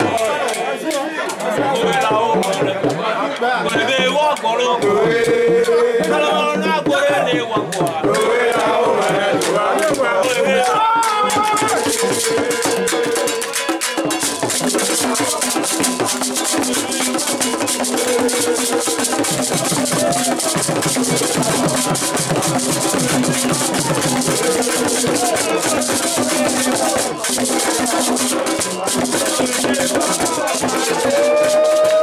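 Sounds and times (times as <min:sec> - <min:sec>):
men singing together: 0:00.0 - 0:32.0
rattles and percussion shaking: 0:07.6 - 0:32.0.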